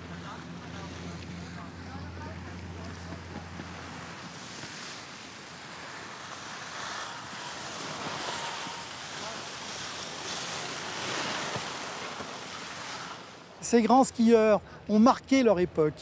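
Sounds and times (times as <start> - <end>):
skis sliding on packed snow: 2.8 - 13.4.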